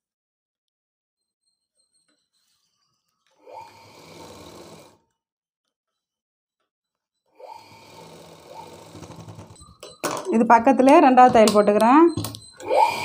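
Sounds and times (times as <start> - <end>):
sewing machine stitching: 3.5 - 5.0, 7.4 - 9.8.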